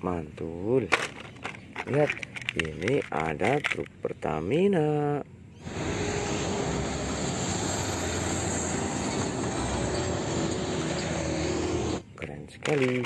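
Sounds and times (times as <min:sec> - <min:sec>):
truck engine and tyre rumble: 0:05.6 - 0:12.1.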